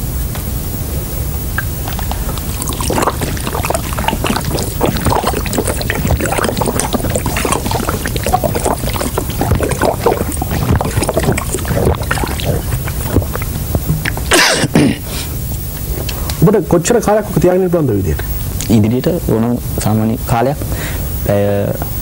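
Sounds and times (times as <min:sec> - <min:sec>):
man gulping water: 0:01.4 - 0:16.4.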